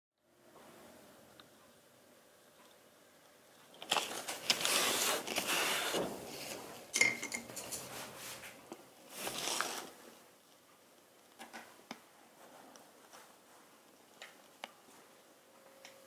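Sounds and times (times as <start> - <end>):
tools scraping and rustling: 3.8 - 10.0.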